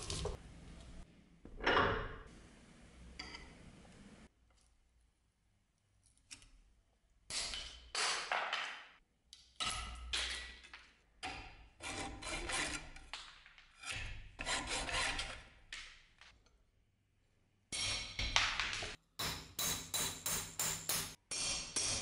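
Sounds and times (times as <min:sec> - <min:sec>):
hacksaw sawing through metal: 0:11.8 - 0:12.9, 0:13.9 - 0:15.4.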